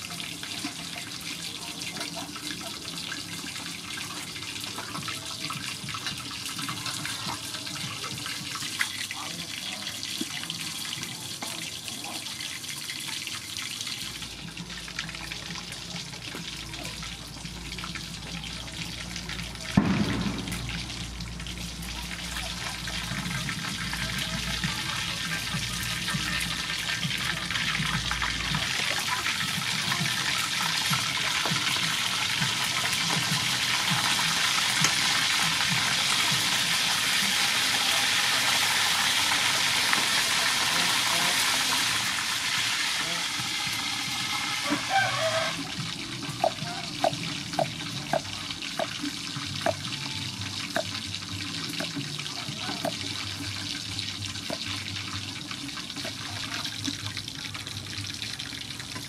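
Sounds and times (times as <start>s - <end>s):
fish sizzling in hot oil: 0.0s - 59.0s
sudden loud splash or knock: 19.8s - 21.1s.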